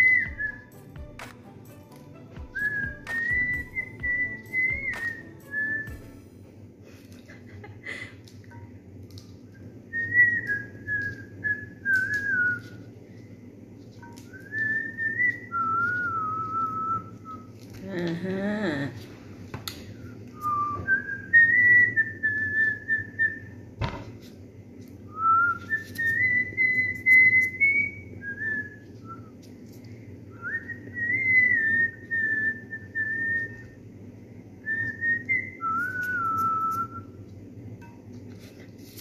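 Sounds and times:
person whistling a tune: 0.0s - 6.3s, 9.9s - 12.8s, 14.2s - 17.5s, 20.0s - 23.6s, 25.1s - 29.4s, 30.3s - 33.8s, 34.6s - 37.2s.

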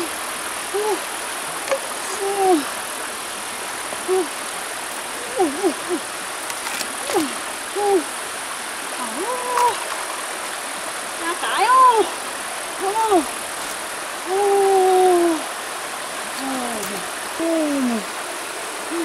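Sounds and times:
river running over stones: 0.0s - 19.0s
short vocal calls: 4.0s - 4.4s, 5.0s - 6.2s, 6.8s - 8.1s.

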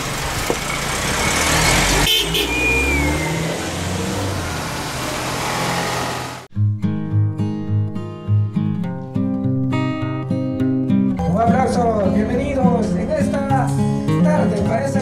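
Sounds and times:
cars driving past: 0.0s - 6.5s.

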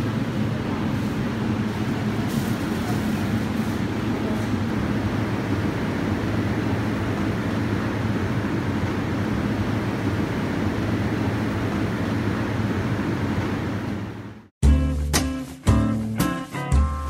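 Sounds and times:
shop interior hum and hiss: 0.0s - 17.0s.

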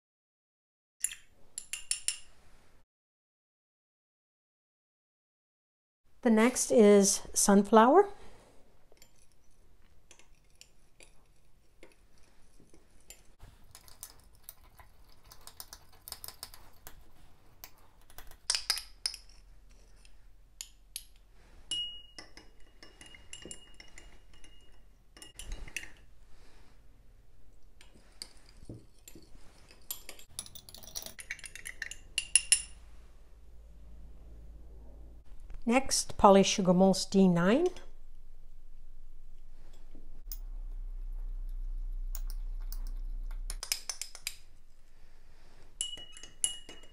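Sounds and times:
glass ringing tone: 21.7s - 24.8s, 40.3s - 43.6s
clinks against glass: 21.7s - 25.9s, 45.8s - 46.9s.

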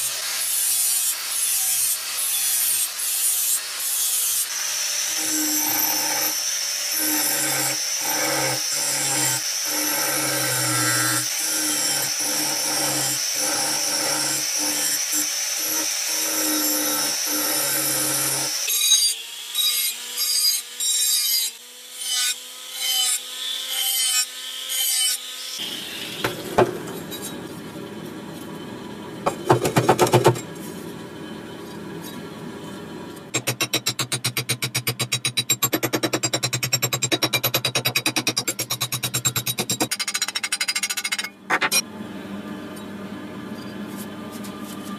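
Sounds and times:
angle grinder cutting steel: 0.0s - 27.4s
rotary tool grinding: 0.6s - 18.9s.

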